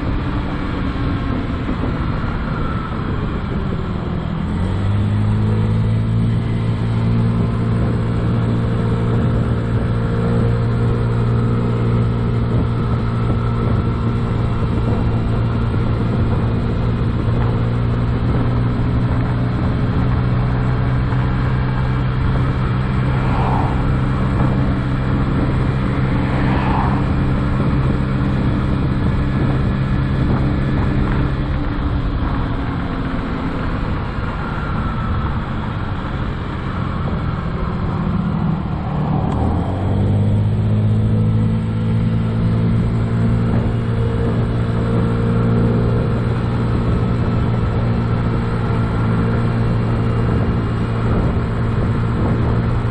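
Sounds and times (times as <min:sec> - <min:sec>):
road noise: 0:00.0 - 0:52.9
wind noise: 0:00.0 - 0:52.9
scooter engine running: 0:12.0 - 0:39.6.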